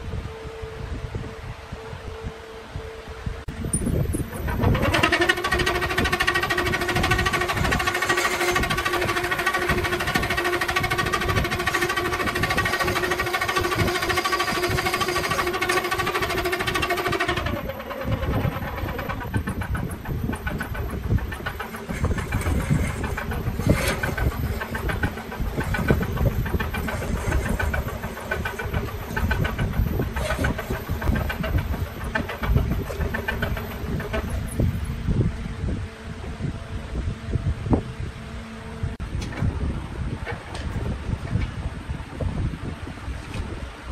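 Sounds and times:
lathe low rumble: 0.0s - 43.9s
gouge scraping wood on lathe: 4.2s - 34.8s.

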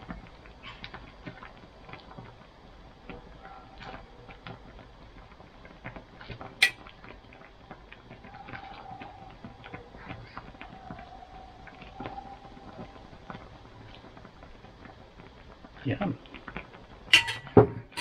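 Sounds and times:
ladle clinking on glass: 17.1s - 18.0s.

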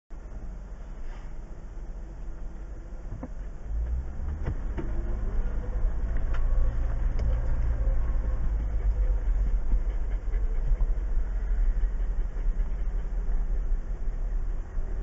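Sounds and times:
car engine rumbling: 0.1s - 15.0s.

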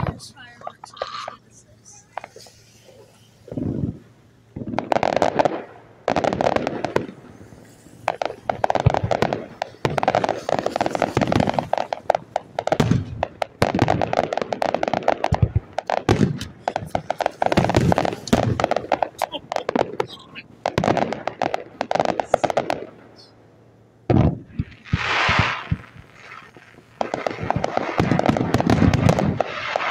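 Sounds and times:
low firework booms: 0.0s - 0.6s, 1.8s - 23.3s, 24.0s - 29.9s
fireworks crackling: 0.0s - 29.9s.

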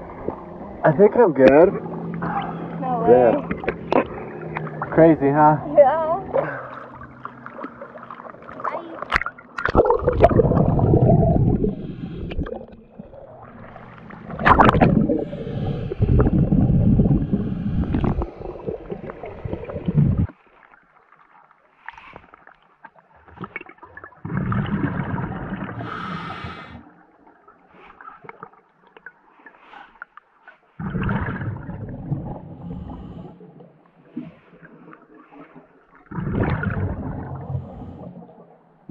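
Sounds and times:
diver exhaling bubbles underwater: 9.1s - 20.3s, 23.4s - 27.0s, 30.8s - 33.5s, 34.2s - 38.5s.

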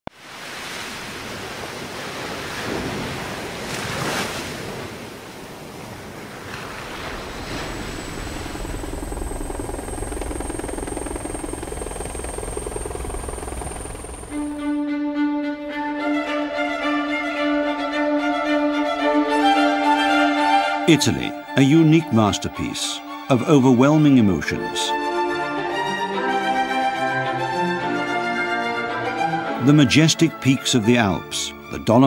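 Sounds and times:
thin high whine: 6.5s - 14.7s
low droning rumble: 6.6s - 14.7s
violin music: 7.1s - 32.0s.

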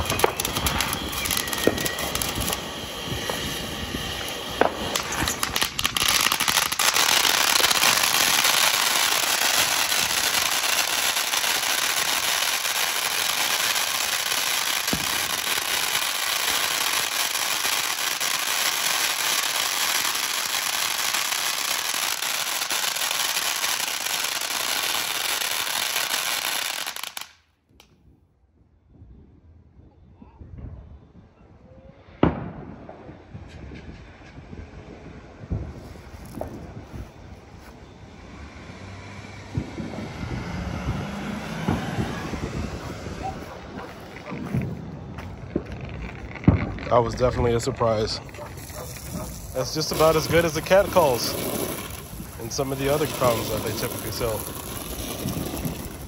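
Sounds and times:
firework fountain hissing: 0.0s - 27.3s, 47.1s - 56.0s
firework crackles: 0.0s - 27.9s, 32.0s - 56.0s.

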